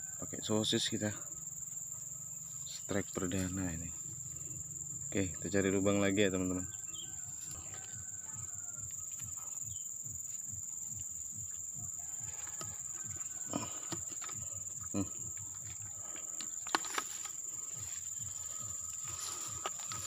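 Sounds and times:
crickets trilling: 0.0s - 20.0s.

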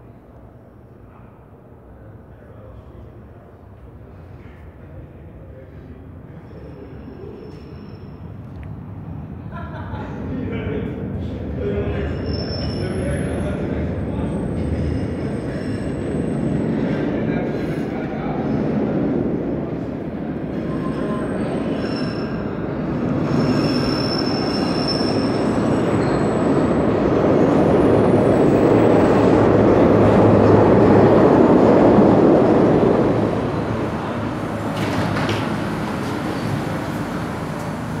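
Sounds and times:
train wheels rumbling on rail: 3.4s - 38.0s
high thin wheel squeals: 20.8s - 22.5s, 23.4s - 26.6s.

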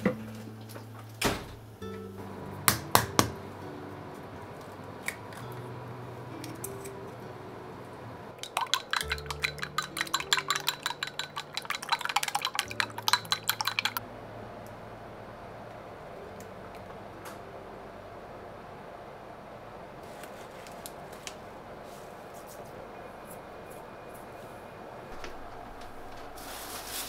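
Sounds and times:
chopsticks beating eggs in bowl: 8.4s - 14.0s
eggs cracked on glass bowl: 8.4s - 14.0s.

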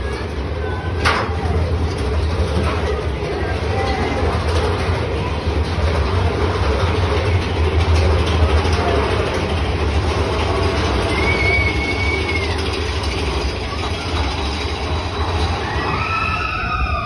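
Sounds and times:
roller coaster wheels rumbling: 0.0s - 17.0s
high wheel squeal: 10.8s - 17.0s.

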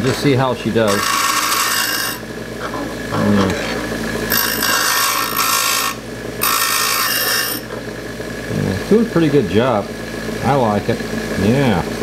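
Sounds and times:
bench grinder motor hum: 0.0s - 12.0s
drill bit grinding hiss: 0.9s - 2.2s, 4.3s - 7.7s.

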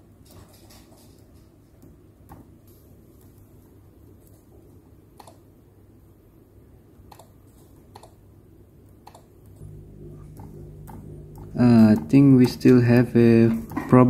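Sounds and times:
laptop keys clicking: 7.1s - 8.2s, 9.0s - 9.6s.

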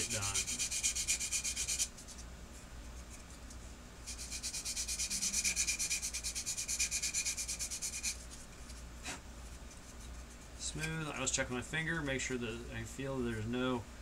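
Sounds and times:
sanding stick scratching plastic: 0.0s - 2.3s, 4.0s - 8.8s.

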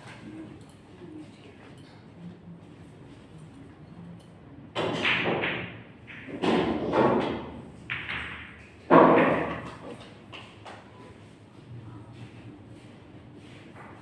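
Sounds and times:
pool balls knocking: 4.7s - 10.6s.

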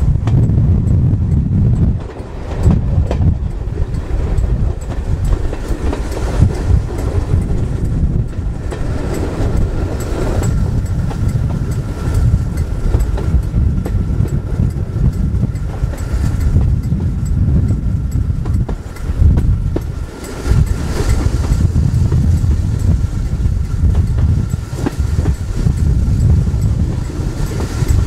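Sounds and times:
train coach rumbling on track: 0.0s - 28.0s
wheels clicking on rails: 0.0s - 28.0s.

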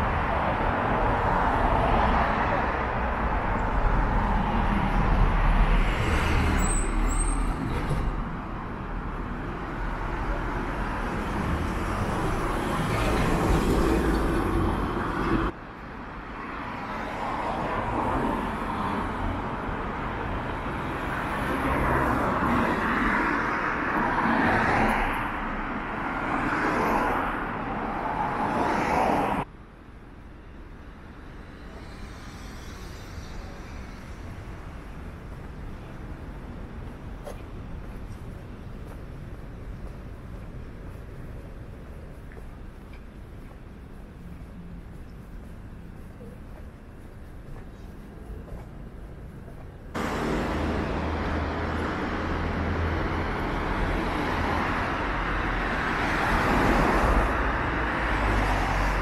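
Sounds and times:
cars driving past: 0.0s - 29.5s, 30.6s - 39.4s, 49.9s - 59.0s
steady road noise: 0.0s - 59.0s.

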